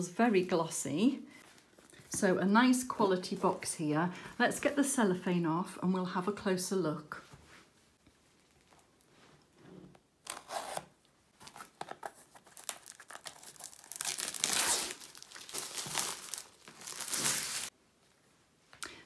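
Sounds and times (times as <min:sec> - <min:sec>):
cellophane tearing and crinkling: 0:11.4 - 0:17.7.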